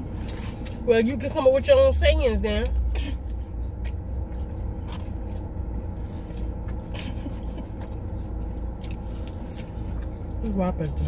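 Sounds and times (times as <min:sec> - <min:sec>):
steady low hum: 0:00.0 - 0:11.0
person chewing food: 0:02.6 - 0:10.6.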